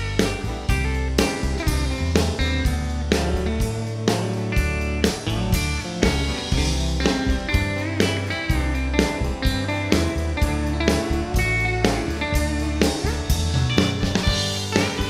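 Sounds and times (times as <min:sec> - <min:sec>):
bass guitar: 0:00.0 - 0:15.0
electric guitar lead with string bends: 0:00.0 - 0:15.0
steady drum beat: 0:00.0 - 0:15.0.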